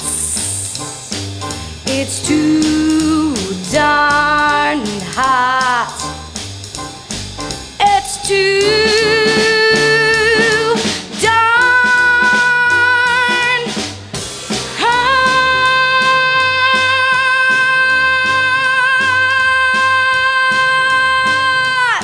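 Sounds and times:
backing track with drums: 0.0 - 22.0
young woman singing with vibrato: 1.9 - 6.1, 7.8 - 13.8, 14.8 - 22.0.

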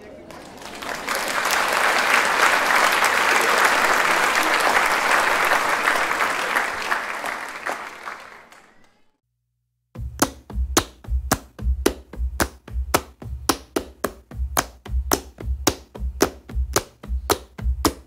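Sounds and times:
crowd applauding: 0.0 - 9.1.

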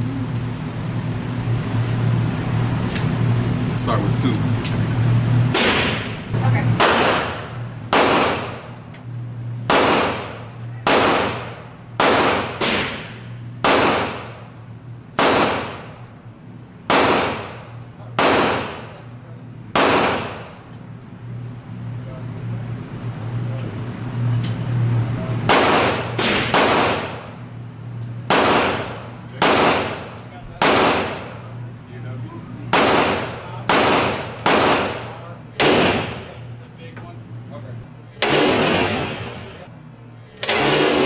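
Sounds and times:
steady low hum: 0.0 - 41.0
gunshots echoing indoors: 5.5 - 8.9, 9.6 - 14.6, 15.2 - 16.1, 16.8 - 19.0, 19.7 - 20.6, 25.4 - 27.4, 28.3 - 31.4, 32.7 - 36.4, 38.2 - 39.6, 40.4 - 41.0.

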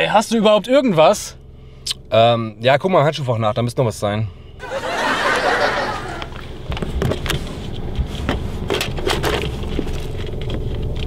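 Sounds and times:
car engine running rumble: 6.2 - 11.0.

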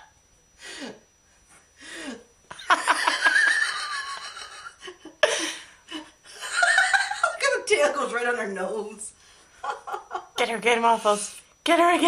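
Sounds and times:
person laughing: 2.5 - 7.4, 9.6 - 10.4.

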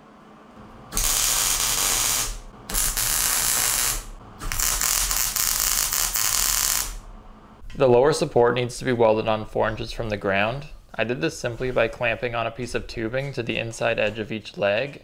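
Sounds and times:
welder arc crackling: 0.9 - 7.1.

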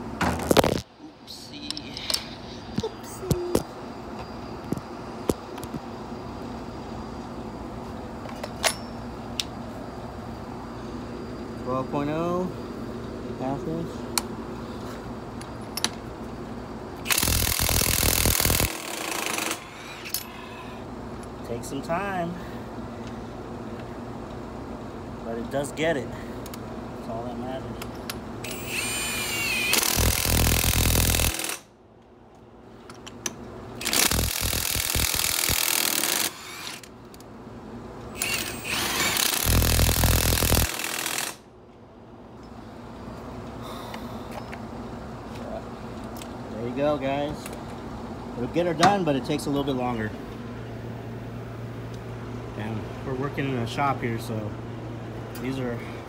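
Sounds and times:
impact wrench hammering on bolts: 29.6 - 31.7, 38.2 - 41.5.

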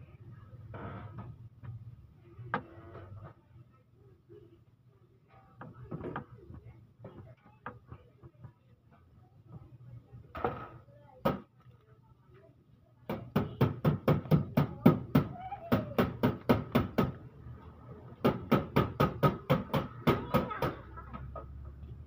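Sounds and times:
rapid hammering knocks: 13.1 - 17.2, 18.2 - 20.9.

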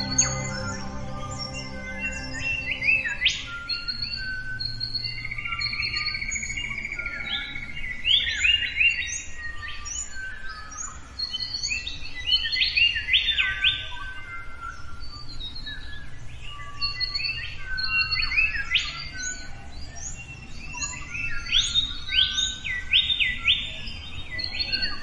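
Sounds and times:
low steady hum: 0.0 - 5.4
bird trill: 0.0 - 9.0
songbirds singing and chirping: 0.0 - 25.0.

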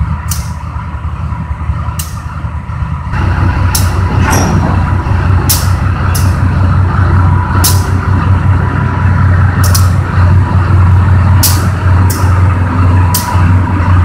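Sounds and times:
diesel locomotive engine rumble: 0.0 - 14.0.

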